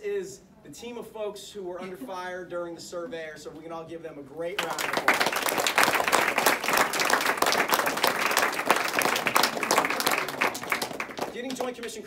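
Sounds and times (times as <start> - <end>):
crowd applauding: 4.6 - 12.0.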